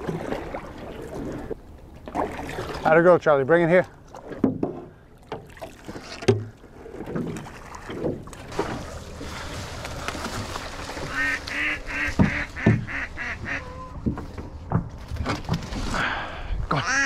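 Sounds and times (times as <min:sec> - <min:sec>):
duck quacking: 0:11.1 - 0:13.9, 0:16.8 - 0:17.0
dull knocks: 0:12.1 - 0:13.0.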